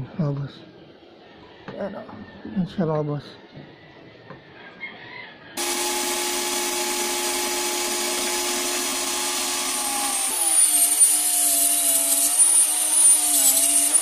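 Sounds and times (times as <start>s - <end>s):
saw blade cutting wood: 5.6s - 14.0s
table saw whining: 5.6s - 14.0s.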